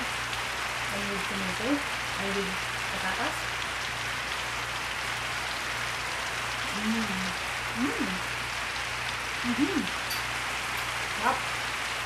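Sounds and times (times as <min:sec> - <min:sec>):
woman humming mmm while eating: 0:09.5 - 0:10.0.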